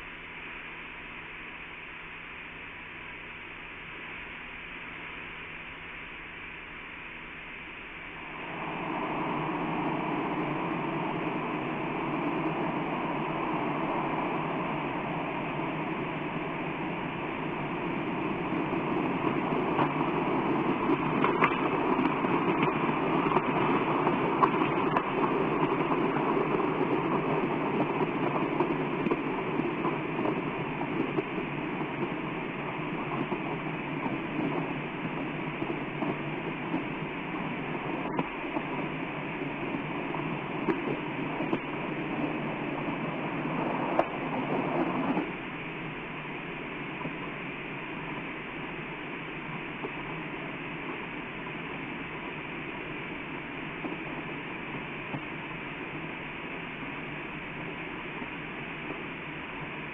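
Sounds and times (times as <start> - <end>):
faint crackles: 7.9 - 59.9
volcanic eruption roar: 8.3 - 59.9.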